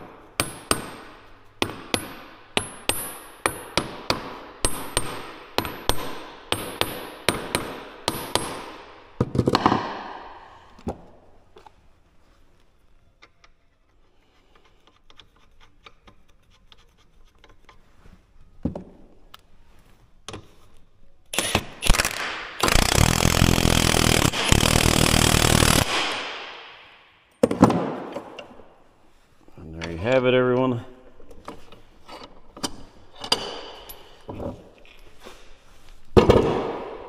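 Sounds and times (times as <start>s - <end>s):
air impact wrench running: 21.4s - 26.6s.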